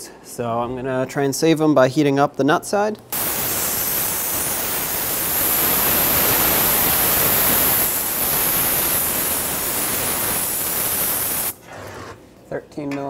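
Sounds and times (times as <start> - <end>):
torch flame hissing: 3.1 - 11.8.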